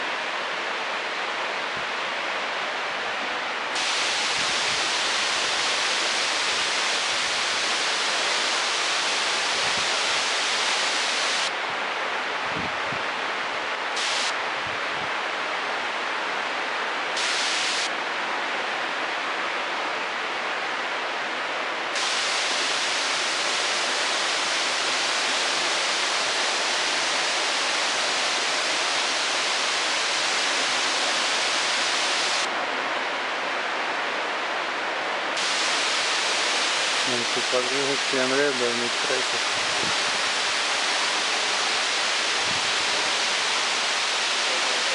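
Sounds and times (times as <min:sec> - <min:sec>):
waterfall rushing: 0:03.8 - 0:11.6, 0:13.5 - 0:14.6, 0:17.1 - 0:18.0, 0:21.9 - 0:32.5, 0:35.4 - 0:44.9.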